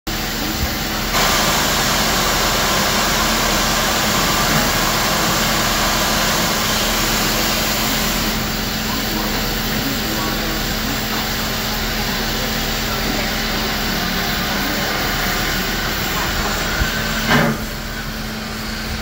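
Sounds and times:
steam locomotive hissing: 0.1 - 19.0.

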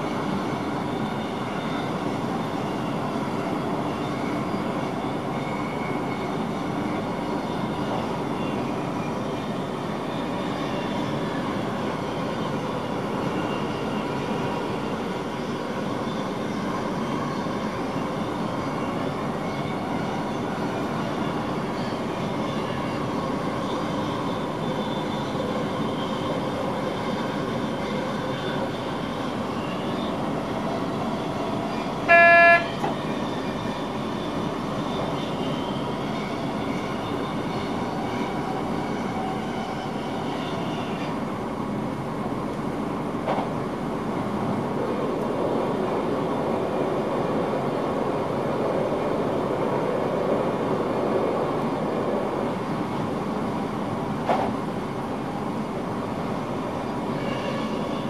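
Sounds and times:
train running noise: 0.0 - 58.0
train horn toot: 32.0 - 33.0, 57.1 - 58.0.

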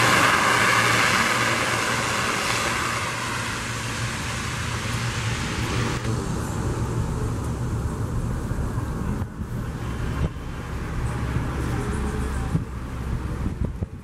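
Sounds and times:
turboprop engines droning: 0.0 - 14.0.

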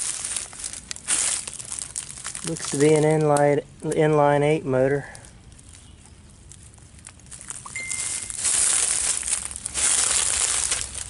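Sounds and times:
brush rustling against camera: 0.0 - 4.0, 5.1 - 11.0
footsteps crunching dry leaves: 0.0 - 4.0, 4.9 - 11.0.

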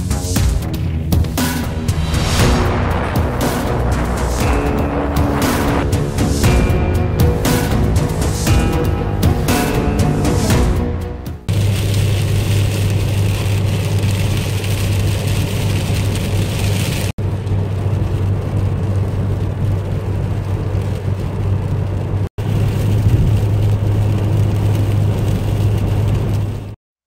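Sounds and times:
car road and engine drone: 0.0 - 26.8.

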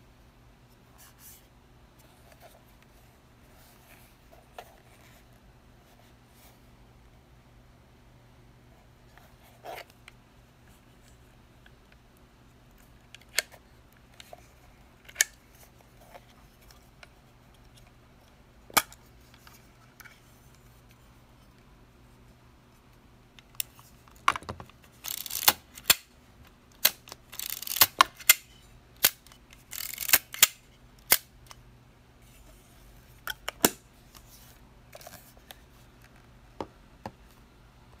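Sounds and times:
camera winding rasps: 25.0 - 26.0, 27.3 - 28.0, 29.6 - 30.5
film camera mechanical clicks: 25.0 - 26.0, 26.8 - 28.4, 29.0 - 31.6.

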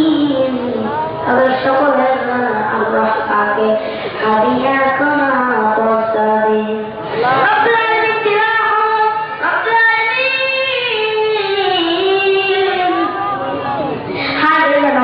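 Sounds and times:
child singing: 7.4 - 13.1.

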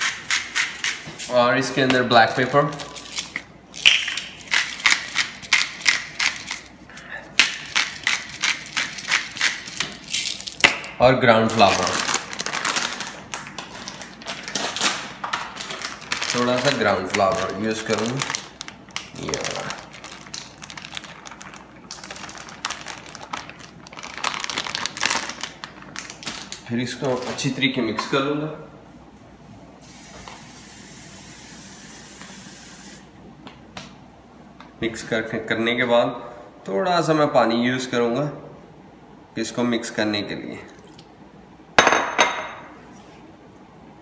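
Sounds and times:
pepper grinder crunching peppercorns: 2.2 - 6.7, 7.4 - 10.7, 11.4 - 27.6
plastic bag crinkling: 8.3 - 10.6, 11.4 - 27.6.

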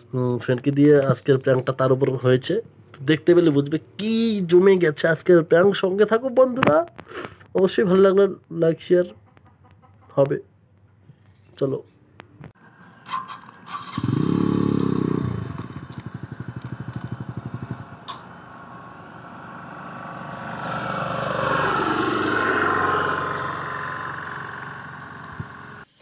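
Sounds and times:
motorcycle engine revving and idling: 12.5 - 26.0.

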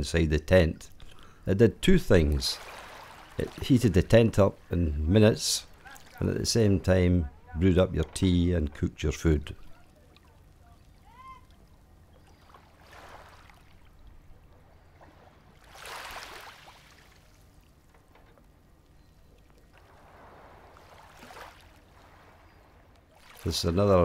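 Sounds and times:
low steady hum: 0.0 - 24.0
sea water washing: 2.3 - 5.0, 5.6 - 6.6, 9.6 - 17.7, 19.4 - 24.0.

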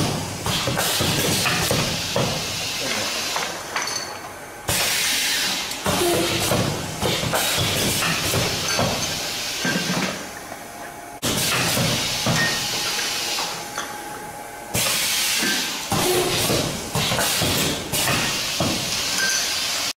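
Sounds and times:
compressed air hisses: 4.7 - 8.4, 14.8 - 19.9.

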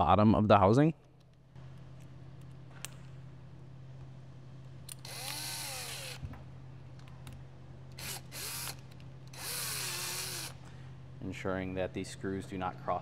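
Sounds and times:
cordless drill motor whine: 4.9 - 6.4, 8.0 - 10.6.

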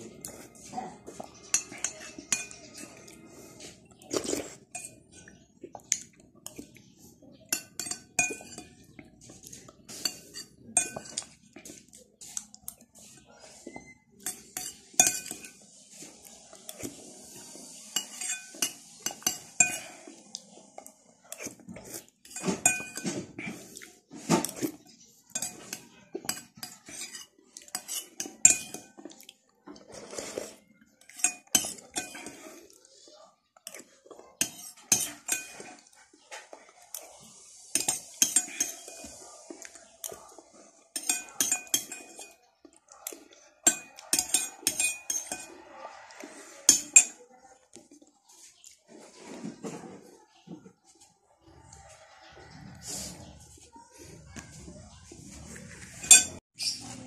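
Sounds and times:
spoon clinking against dish: 1.1 - 3.1, 4.2 - 9.2, 9.8 - 11.8, 12.6 - 16.0, 17.7 - 20.1, 21.3 - 23.6, 24.4 - 29.2, 30.9 - 32.4, 33.6 - 35.9, 37.7 - 40.2, 40.9 - 45.6, 46.7 - 47.2, 56.0 - 56.8.

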